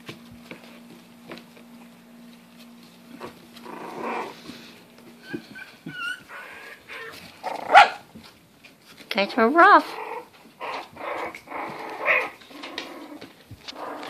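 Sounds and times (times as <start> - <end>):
puppies scuffling: 0.0 - 14.0
loud puppy noise: 3.1 - 4.6, 5.2 - 8.2, 9.6 - 14.0
puppy whimpers: 5.2 - 7.6.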